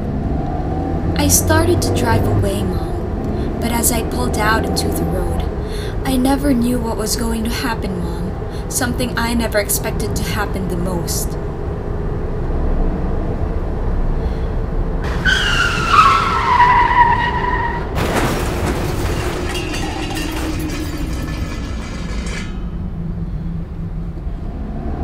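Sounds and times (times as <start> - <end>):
car crash impact: 15.0 - 23.0
car tyres screeching: 15.0 - 23.4
rattling debris: 15.1 - 23.3.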